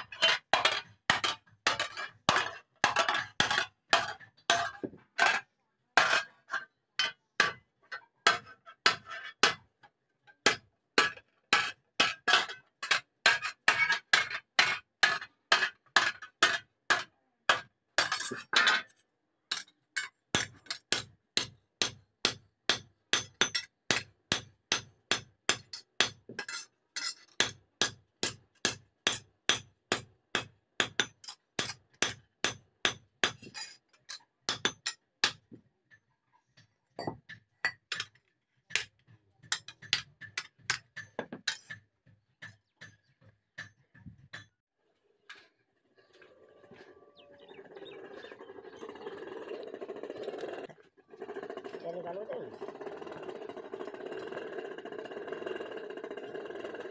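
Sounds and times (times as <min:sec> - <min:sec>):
hammer striking steel: 0:20.4 - 0:33.7.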